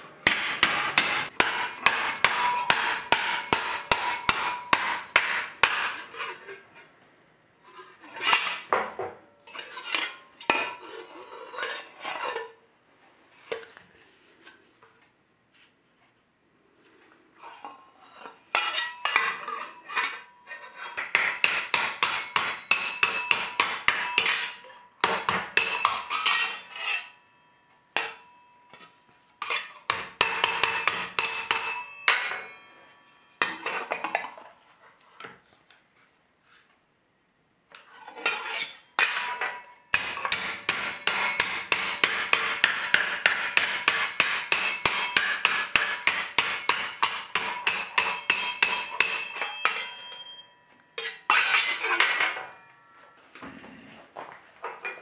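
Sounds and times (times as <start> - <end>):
hammer striking steel plate: 0.2 - 6.0, 21.0 - 28.9, 29.9 - 33.6, 39.0 - 50.6.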